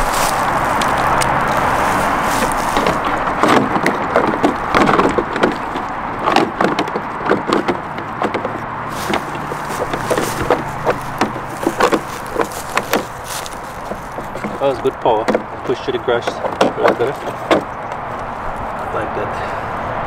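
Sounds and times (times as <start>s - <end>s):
plastic clicks and knocks: 2.4s - 13.2s, 15.2s - 18.3s.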